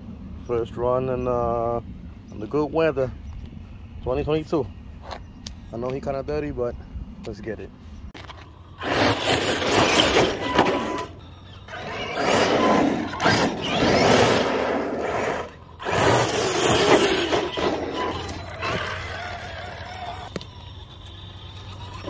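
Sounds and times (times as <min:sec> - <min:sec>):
rc truck motor whine: 0:08.2 - 0:22.0
tyres scrubbing on pavement: 0:08.2 - 0:22.0.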